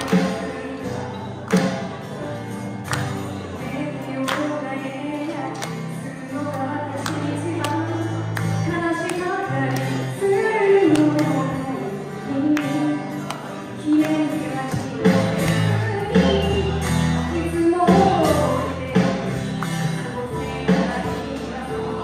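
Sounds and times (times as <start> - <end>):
woman singing: 0.0 - 1.4, 3.6 - 22.0
live band music: 5.2 - 22.0.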